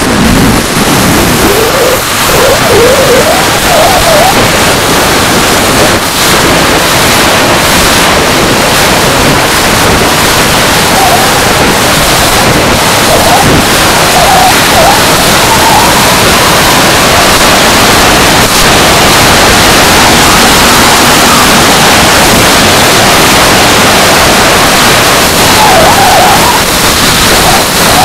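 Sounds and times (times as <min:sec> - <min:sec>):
model jet turbine rushing: 0:00.0 - 0:28.0
faint wavering whine: 0:00.5 - 0:05.1.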